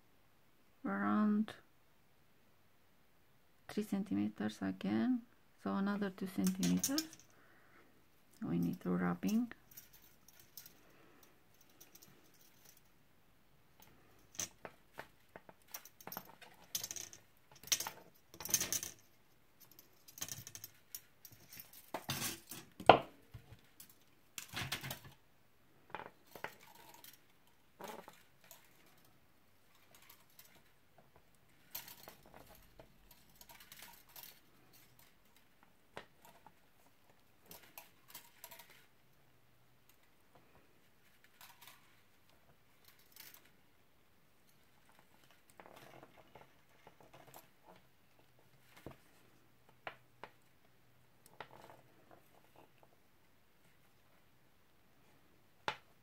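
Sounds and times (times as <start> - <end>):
metal wire clicking and scraping: 6.4 - 7.4, 8.7 - 13.0, 13.7 - 25.2, 25.9 - 43.7, 44.4 - 50.4.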